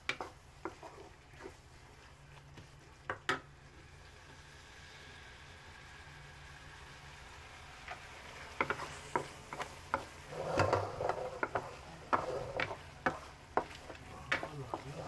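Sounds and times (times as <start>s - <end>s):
wooden spatula scraping a pan: 0.0s - 3.2s, 7.9s - 15.0s
light sizzle of frying: 0.0s - 15.0s.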